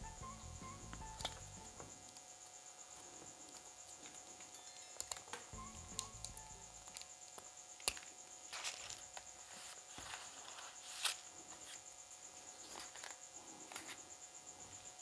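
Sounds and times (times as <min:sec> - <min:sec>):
high-pitched trill: 0:00.0 - 0:01.7, 0:04.6 - 0:06.9
scissors snipping plastic spoon: 0:05.0 - 0:09.1.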